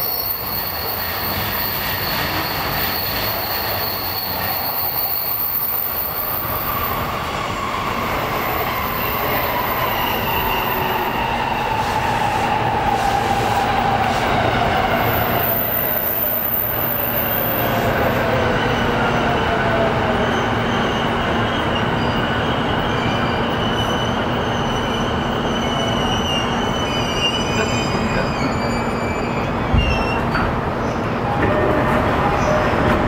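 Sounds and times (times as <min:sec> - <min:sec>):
high wheel squeal: 0:00.0 - 0:11.3, 0:20.1 - 0:32.8
train running noise: 0:00.0 - 0:33.0.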